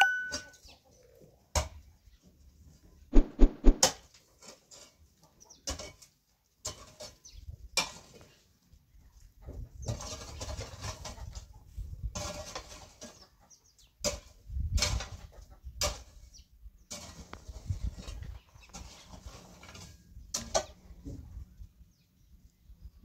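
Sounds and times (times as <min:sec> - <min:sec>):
shovel scraping stony earth: 0:03.1 - 0:04.9, 0:16.9 - 0:20.7.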